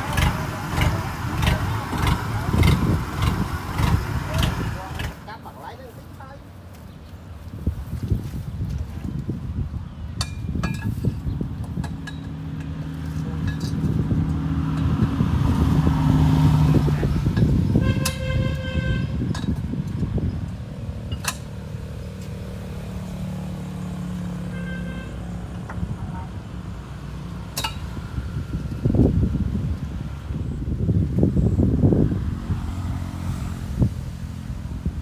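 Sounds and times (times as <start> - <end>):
tracked vehicle engine running: 0.0 - 6.1, 10.5 - 35.0
vehicle horn toots: 17.7 - 19.2, 24.4 - 25.4.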